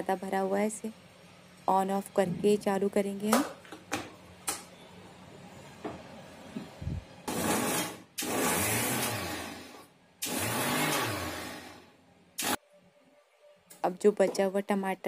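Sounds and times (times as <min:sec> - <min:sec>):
mixer grinder motor: 0:07.3 - 0:11.9.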